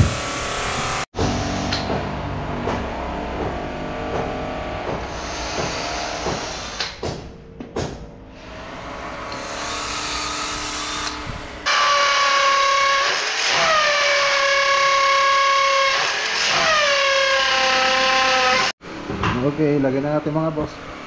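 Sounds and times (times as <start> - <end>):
power tool motor whine: 8.5 - 18.7.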